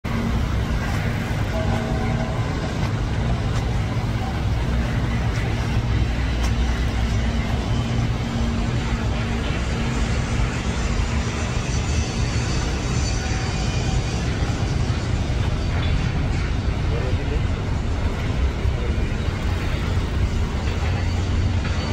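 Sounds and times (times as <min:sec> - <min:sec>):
boat engine rumbling: 0:00.0 - 0:21.9.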